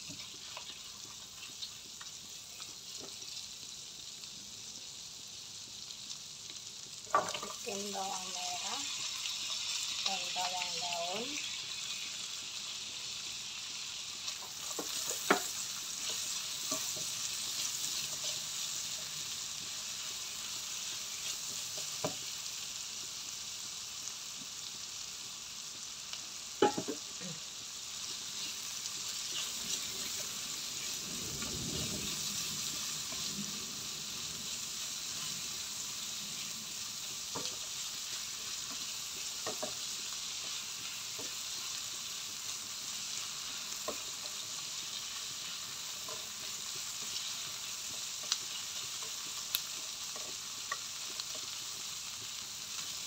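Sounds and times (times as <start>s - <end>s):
vegetables sizzling in oil: 0.0s - 53.0s
spatula knocking on pan: 26.6s - 27.0s.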